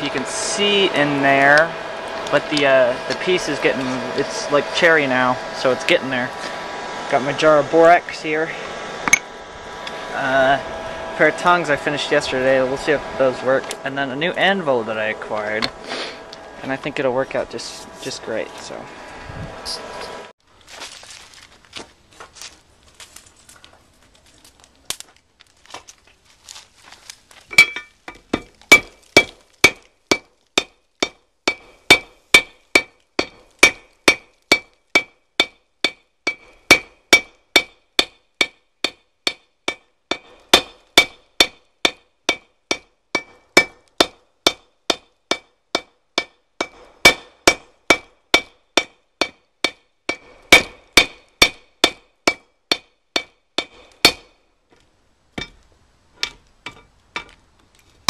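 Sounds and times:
hammer striking steel on anvil: 9.0 - 9.3, 27.5 - 54.4, 55.4 - 55.6, 56.2 - 57.4.

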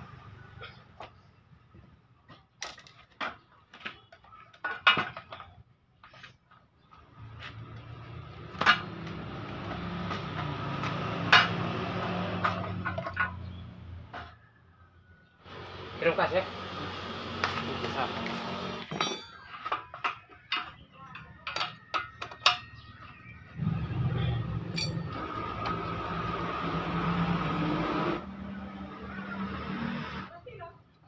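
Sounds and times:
metal clinks and knocks: 12.3 - 14.2, 18.8 - 23.0, 24.6 - 25.8.

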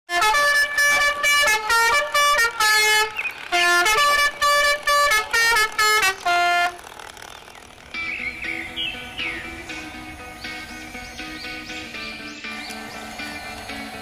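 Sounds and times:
buzzy horn-like tune: 0.1 - 11.0.

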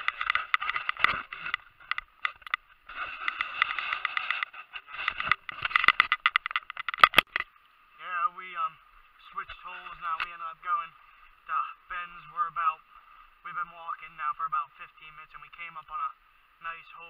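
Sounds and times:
dry grass rustling underfoot: 0.0 - 7.4
sharp clicks: 0.0 - 7.5.

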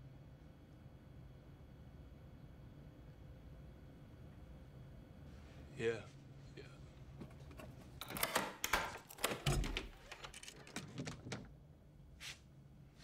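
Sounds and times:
door locks clicking and rattling: 7.5 - 11.6
wooden door opening: 7.5 - 11.6.

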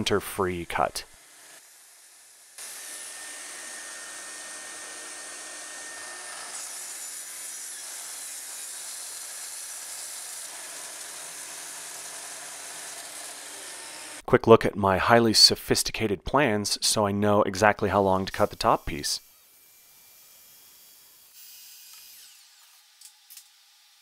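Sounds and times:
track saw cutting wood: 1.2 - 14.2, 18.3 - 24.0.

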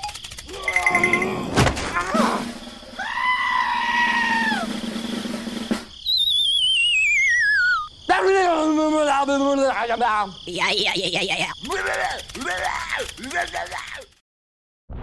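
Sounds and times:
descending wavering whistle: 6.0 - 7.9
squeaky cartoon voices: 6.8 - 7.9, 10.5 - 14.1.

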